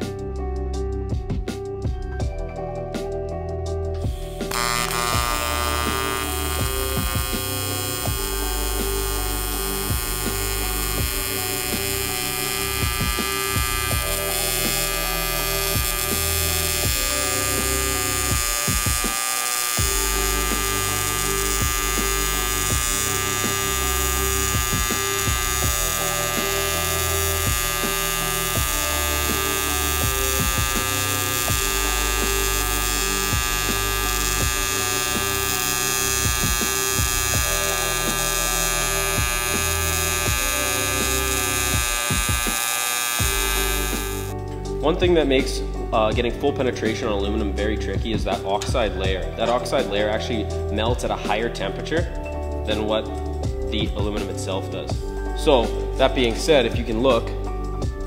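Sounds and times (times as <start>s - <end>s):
welding arc buzzing: 4.2s - 44.5s.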